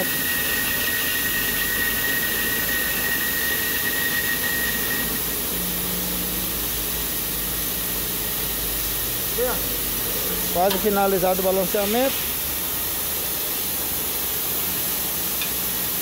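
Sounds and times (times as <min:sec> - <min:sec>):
wheel balancer whirring: 0:00.0 - 0:05.9
thin high whine: 0:00.0 - 0:16.0.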